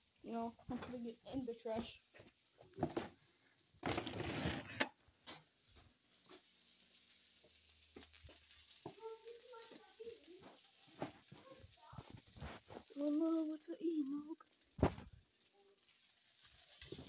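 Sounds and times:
fried rice sizzling in a frying pan: 0.0 - 17.0
rustling: 0.0 - 17.0
faint voice: 8.9 - 12.2.

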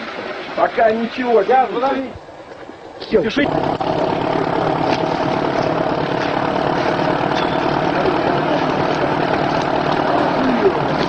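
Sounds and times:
heavy vehicle engine running: 3.2 - 11.0.

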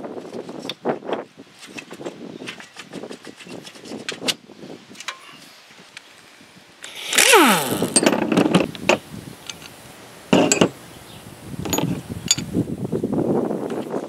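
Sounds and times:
impact wrench spinning: 6.8 - 8.3
metal clinks and clatter: 7.2 - 8.6, 10.4 - 10.8.

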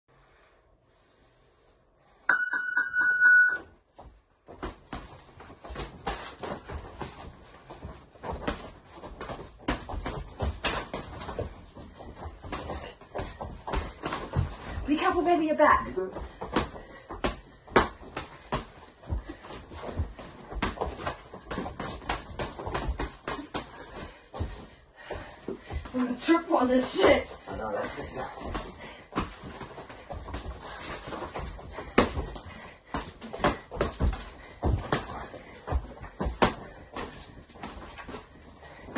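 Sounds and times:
electronic round bell ringing: 2.3 - 3.7
footwork: 4.0 - 38.9.

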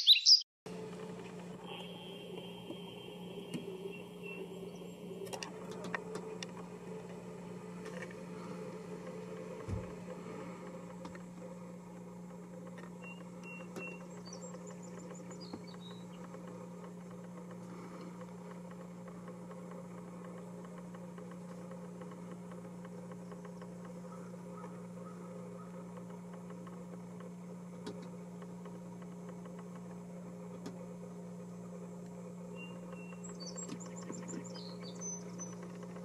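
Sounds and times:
faint high chirps: 0.0 - 0.4.

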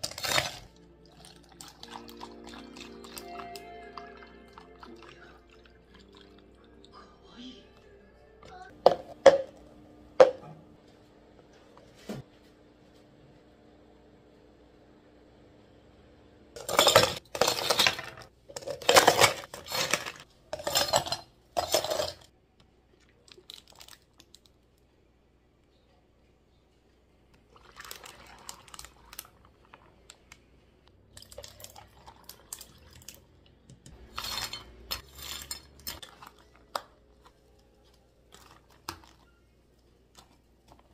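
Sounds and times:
ice cubes clattering into cups: 0.0 - 6.4, 16.6 - 22.3, 27.5 - 29.8, 31.1 - 33.2, 33.9 - 37.4
pouring and handling sounds: 0.0 - 6.8, 16.6 - 22.3, 22.9 - 24.6, 27.4 - 30.4, 31.0 - 40.9.

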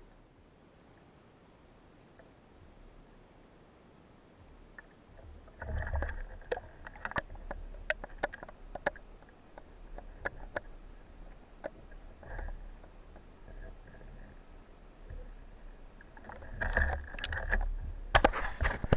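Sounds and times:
low water rumble: 0.0 - 18.9
rushes of water: 4.4 - 18.9
underwater clicks and knocks: 4.7 - 14.4, 16.0 - 18.9.

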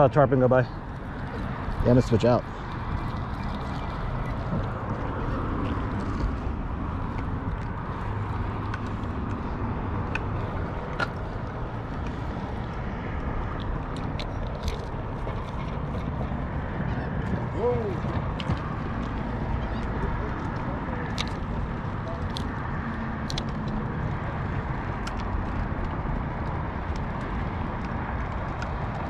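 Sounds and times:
wind buffeting microphone: 0.0 - 29.0
fishing tackle clicks: 13.6 - 16.0, 23.2 - 23.8.

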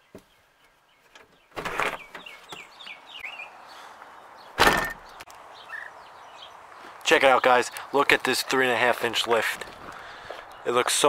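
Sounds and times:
bird chirping: 0.0 - 11.0
car door opening clunk: 4.6 - 5.1
car door slamming: 4.6 - 5.1.

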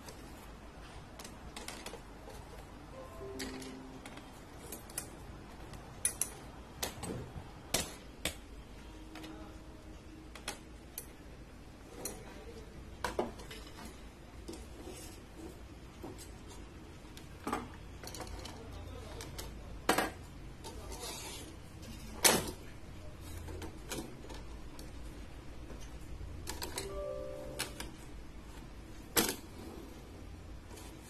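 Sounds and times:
low steady hum: 26.8 - 28.6.

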